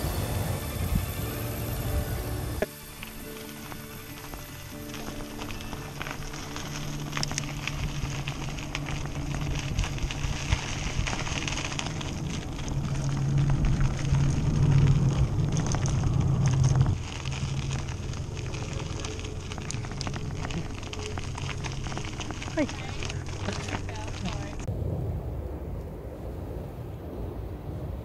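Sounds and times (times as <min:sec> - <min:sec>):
wind buffeting microphone: 0:00.0 - 0:02.6, 0:03.2 - 0:28.0
bicycle tyres crunching on gravel: 0:00.0 - 0:24.7
bike clicks and rattles: 0:02.6 - 0:24.7.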